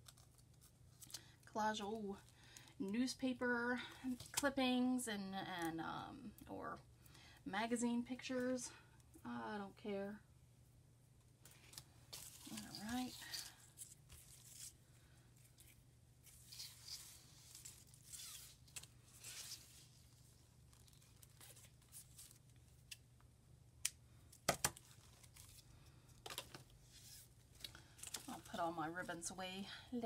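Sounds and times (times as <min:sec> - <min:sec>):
ribbon rustling and sliding: 0:11.4 - 0:23.0, 0:26.5 - 0:29.2.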